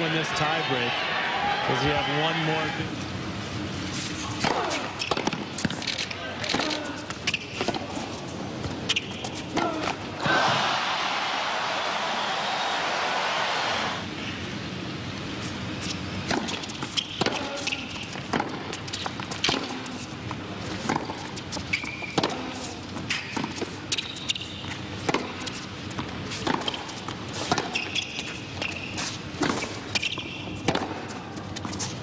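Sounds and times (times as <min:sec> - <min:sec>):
people shouting: 0:09.6 - 0:14.0.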